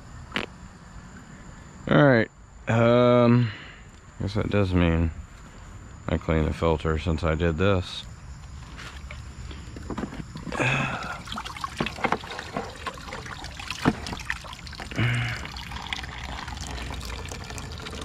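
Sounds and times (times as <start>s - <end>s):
water trickling and splashing: 10.3s - 18.0s.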